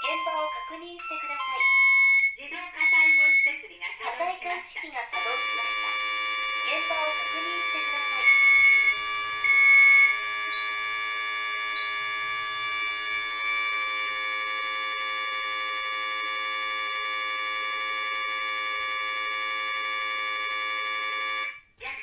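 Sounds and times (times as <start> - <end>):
continuous electronic alarm tone: 0.0 - 4.2, 5.1 - 21.7
short loud beep: 1.6 - 3.5, 5.2 - 10.2.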